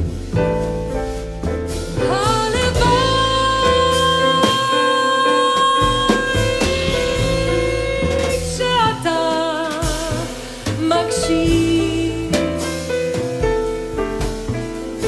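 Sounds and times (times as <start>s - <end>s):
double bass: 0.0s - 15.0s
drums with cymbals: 0.0s - 15.0s
piano: 0.0s - 15.0s
woman singing with vibrato: 2.0s - 12.5s.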